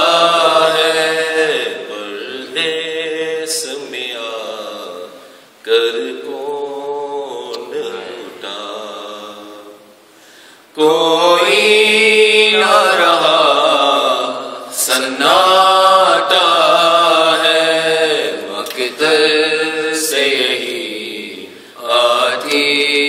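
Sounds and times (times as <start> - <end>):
men chanting a lament: 10.8 - 23.0.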